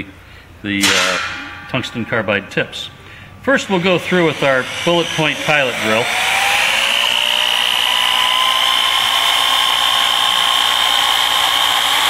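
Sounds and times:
electric drill motor whine: 4.6s - 12.0s.

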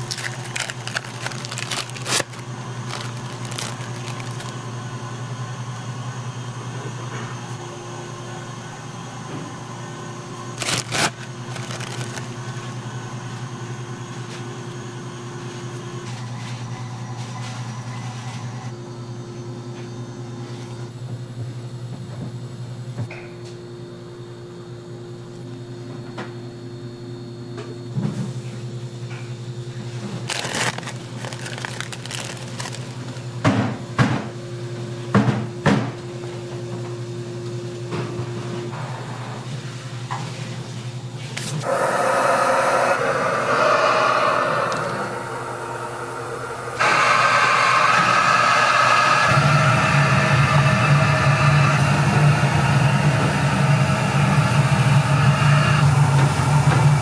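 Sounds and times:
gloved hands handling rustles: 0.0s - 4.6s, 10.6s - 12.6s, 30.1s - 33.3s
low machine hum: 0.0s - 57.0s.

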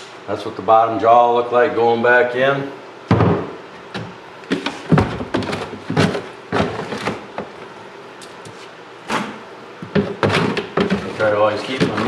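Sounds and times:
knocks and thuds against sink: 3.1s - 7.2s, 9.8s - 11.2s.

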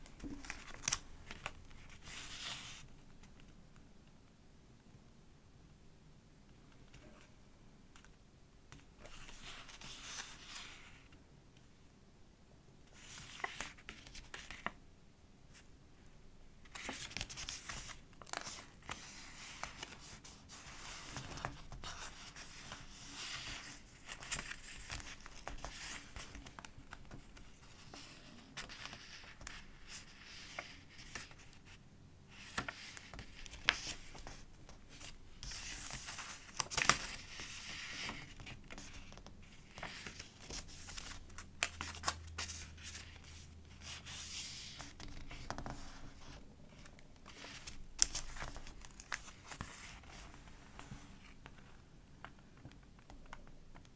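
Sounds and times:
paper pages rustling: 0.0s - 3.5s, 9.0s - 11.1s, 16.6s - 31.7s, 32.3s - 52.4s.

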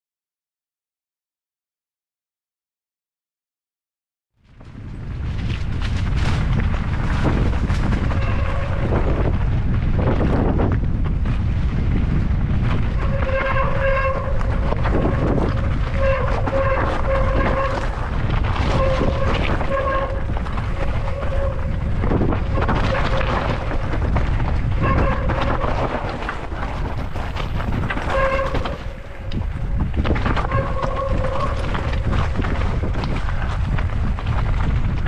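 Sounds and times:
bike tyres rumbling on gravel: 4.4s - 35.0s
wind on microphone: 4.4s - 35.0s.

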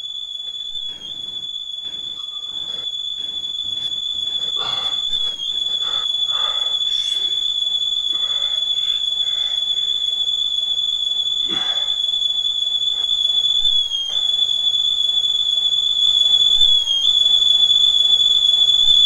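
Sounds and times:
high-pitched electronic whine: 0.0s - 11.6s.

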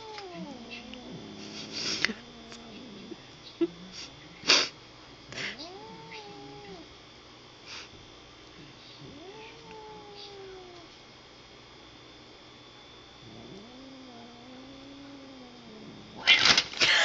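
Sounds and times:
cat yowling: 0.0s - 3.2s, 5.5s - 6.8s, 9.1s - 10.9s.

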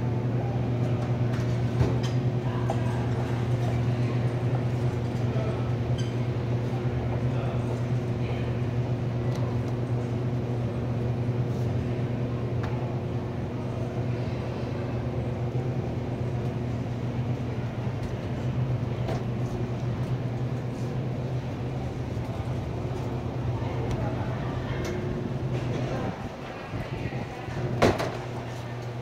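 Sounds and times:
supermarket hum and rumble: 0.0s - 29.0s.

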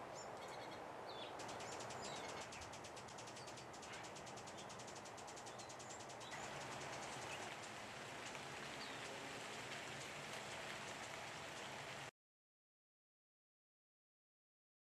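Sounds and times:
garden hiss: 0.0s - 12.1s
faint high bird chirps: 0.1s - 7.6s.

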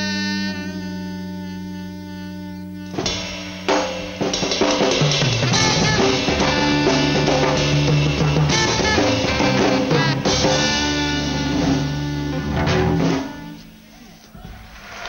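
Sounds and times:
live band playing: 0.0s - 15.0s
drum kit hits and fill: 2.9s - 13.6s
band held chord: 2.9s - 13.9s.

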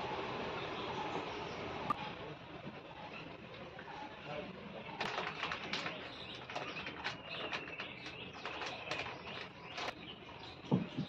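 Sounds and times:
faint birds calling: 0.0s - 11.0s
plastic packet crinkling: 5.0s - 9.9s.

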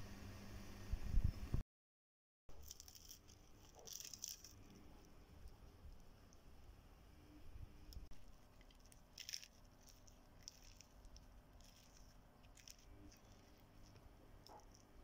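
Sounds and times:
crisp flatbread being torn: 2.5s - 5.6s, 8.3s - 15.0s.

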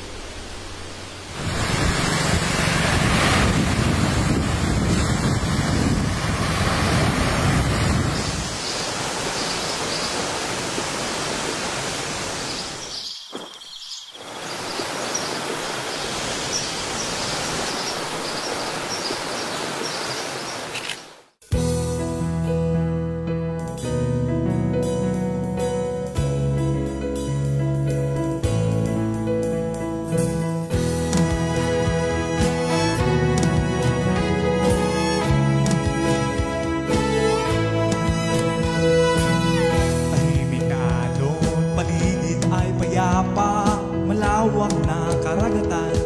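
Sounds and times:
waterfall rushing over rocks: 0.0s - 13.6s, 14.2s - 21.2s.

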